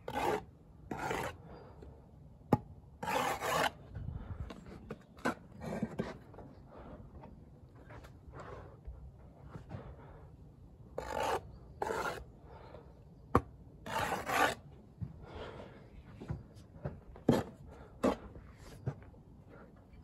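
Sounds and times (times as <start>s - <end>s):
trowel scraping mortar: 0.1s - 1.4s, 3.0s - 3.8s, 11.0s - 12.3s, 13.8s - 14.6s.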